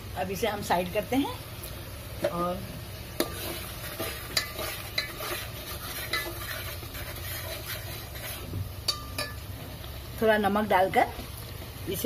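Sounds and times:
oil sizzling: 0.0 - 12.0
metal spoon scraping pot: 3.2 - 9.4.

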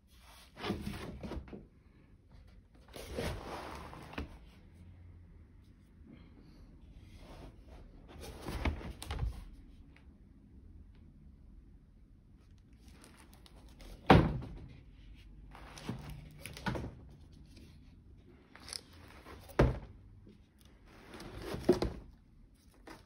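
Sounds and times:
knocks and thuds of paintings: 13.9 - 14.9, 19.4 - 20.1
scraping and rustling: 15.0 - 23.0.

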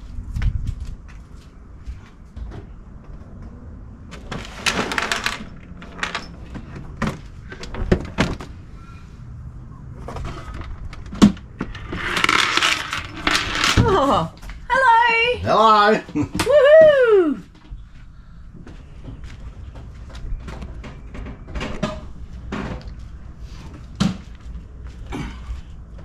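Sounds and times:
plastic scraping: 10.0 - 14.0.

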